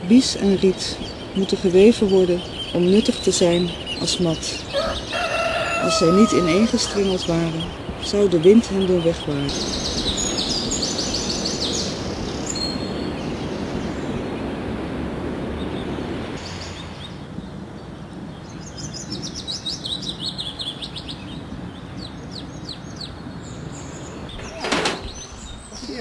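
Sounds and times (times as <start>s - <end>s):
songbirds chirping: 0.0s - 26.0s
steady outdoor hiss: 0.0s - 26.0s.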